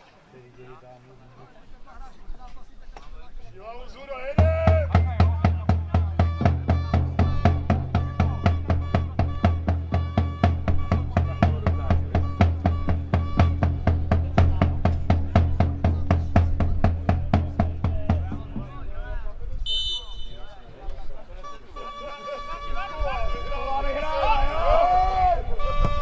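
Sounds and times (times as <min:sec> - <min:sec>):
music with fast steady beat: 0:04.4 - 0:18.9
held bass note: 0:04.5 - 0:18.7.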